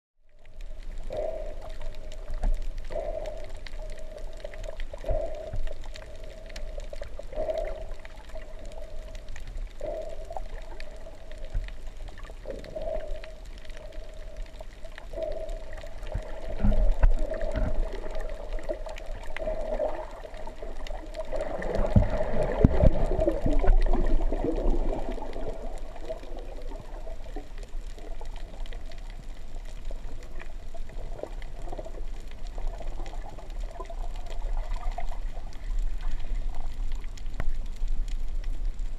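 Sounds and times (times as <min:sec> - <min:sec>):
rumbling underwater gurgles: 0:00.2 - 0:38.9
muffled underwater hum: 0:00.3 - 0:38.9.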